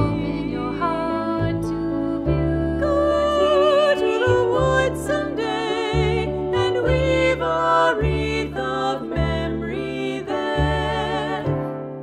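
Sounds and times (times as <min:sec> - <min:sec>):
double bass long low notes: 0:00.0 - 0:11.8
piano: 0:00.0 - 0:12.0
women singing in harmony: 0:00.0 - 0:12.0.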